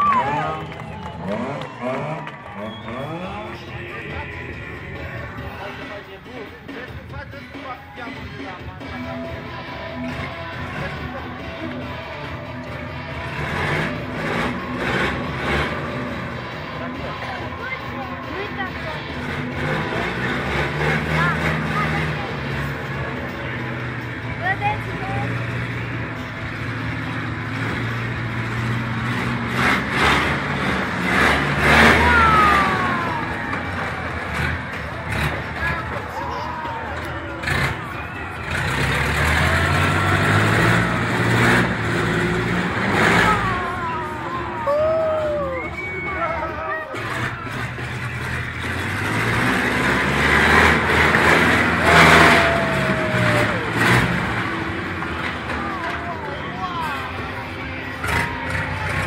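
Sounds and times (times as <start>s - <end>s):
monster truck engine revving: 0.0s - 59.0s
high whistle-like tone: 45.1s - 46.8s
long falling tone: 51.6s - 54.9s.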